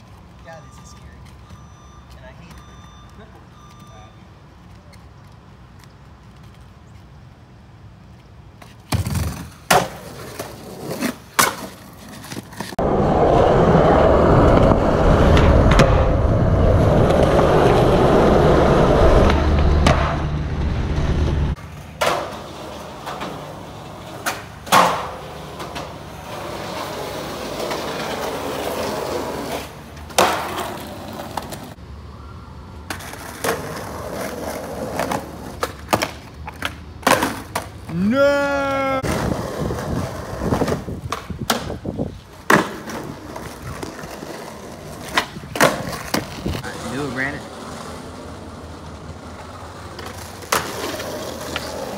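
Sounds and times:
skateboard wheels rolling: 0.0 - 51.9
skateboard popping and landing: 8.6 - 13.4, 14.0 - 20.7, 21.6 - 31.8, 32.8 - 38.1, 39.0 - 46.9, 47.5 - 51.9.

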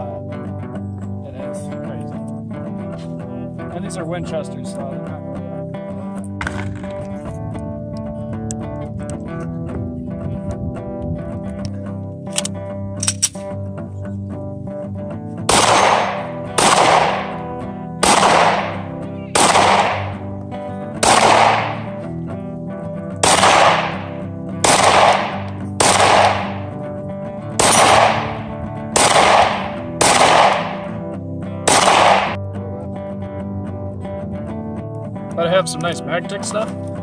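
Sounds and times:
pistol shots: 15.5 - 20.4, 21.0 - 22.0, 23.2 - 26.8, 27.6 - 32.4.

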